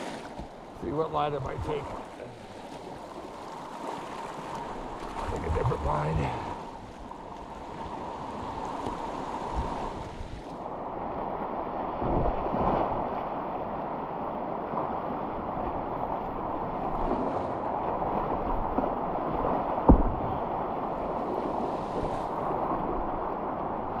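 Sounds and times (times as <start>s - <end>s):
rushing whitewater: 0.0s - 6.8s
low thumps: 19.8s - 20.5s.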